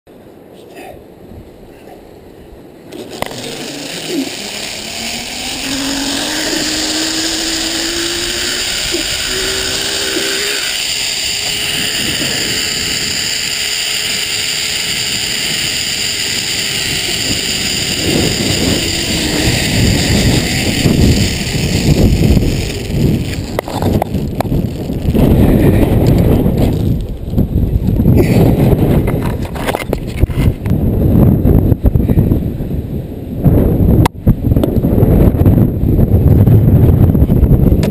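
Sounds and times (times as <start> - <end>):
zip-line pulleys whining on cable: 2.9 - 27.3.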